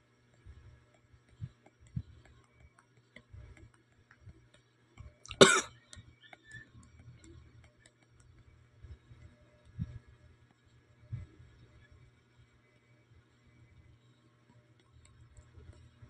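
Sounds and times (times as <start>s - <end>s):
person coughing: 5.3s - 5.7s.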